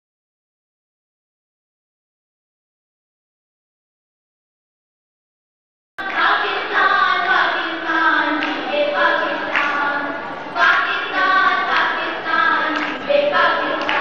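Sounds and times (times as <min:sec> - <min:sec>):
group singing: 0:06.0 - 0:14.0.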